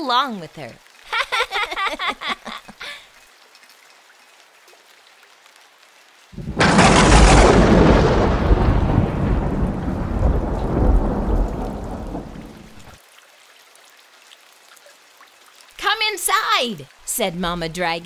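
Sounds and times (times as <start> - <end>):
light rain pattering: 0.0 - 18.0
thunder rumbling: 6.3 - 13.0.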